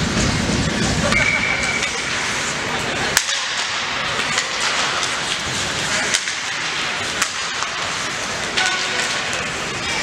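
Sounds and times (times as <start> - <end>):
hiss of ice hockey play: 0.0 - 10.0.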